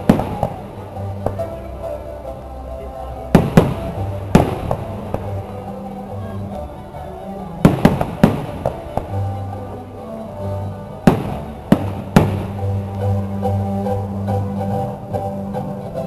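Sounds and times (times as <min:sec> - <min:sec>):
fireworks bursting bangs: 0:00.0 - 0:01.5, 0:03.3 - 0:05.4, 0:07.6 - 0:09.3, 0:11.0 - 0:12.8
music: 0:00.0 - 0:16.0.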